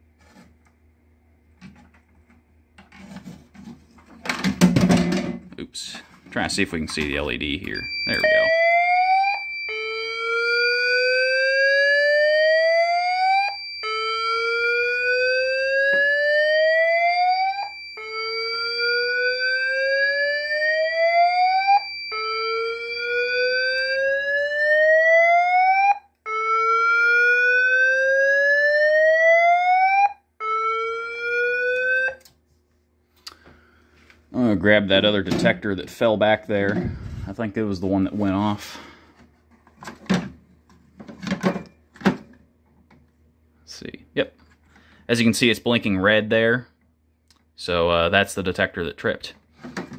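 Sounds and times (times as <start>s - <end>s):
steady high beep: 7.7s - 8.6s
fire alarm whoop tone: 7.8s - 32.2s.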